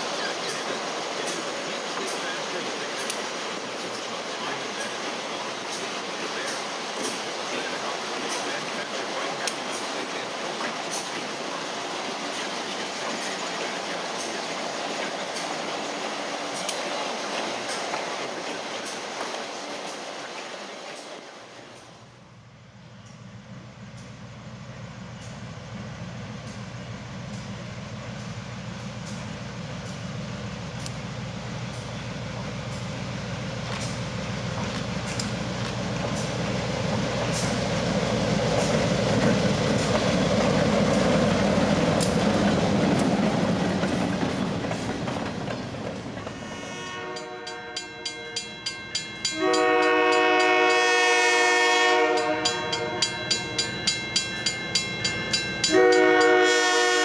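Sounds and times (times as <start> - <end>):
train wheels clicking over rail joints: 0.0 - 22.0, 26.4 - 46.5
diesel locomotive engine: 0.0 - 57.0
locomotive air horn blast: 46.4 - 48.1, 49.3 - 53.4, 55.7 - 57.0
crossing bell ringing: 46.8 - 51.0, 52.0 - 56.9.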